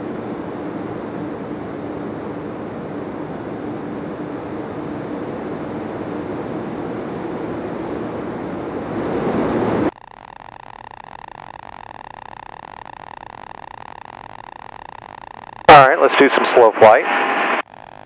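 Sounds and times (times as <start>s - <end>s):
light aircraft engine and propeller: 0.0s - 9.9s
muffled cockpit drone: 0.0s - 18.0s.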